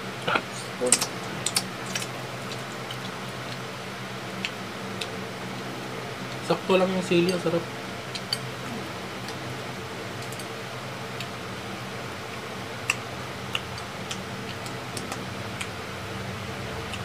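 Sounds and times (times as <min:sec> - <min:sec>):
steady low hum: 0:00.0 - 0:17.0
person chewing food: 0:00.9 - 0:05.2, 0:12.3 - 0:15.8.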